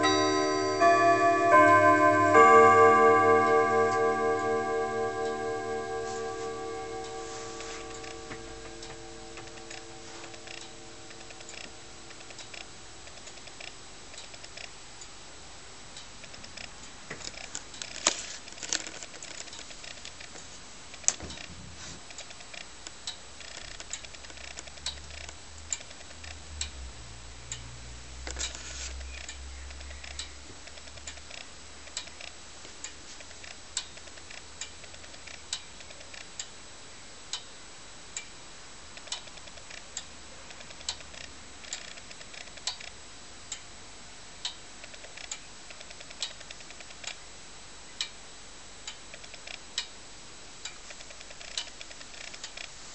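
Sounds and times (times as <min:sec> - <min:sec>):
pendulum clock ticking: 0:00.0 - 0:15.2, 0:22.1 - 0:46.6, 0:48.0 - 0:52.6.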